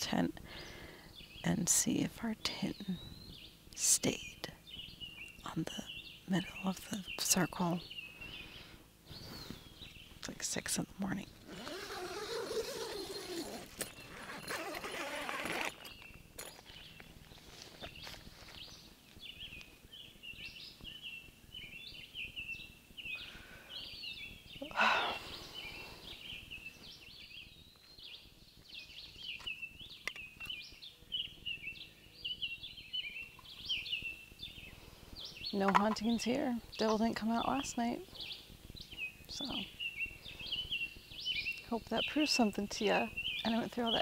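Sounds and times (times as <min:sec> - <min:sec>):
birds chirping: 0:00.0 - 0:44.0
tent zipper pulled open: 0:11.4 - 0:16.0.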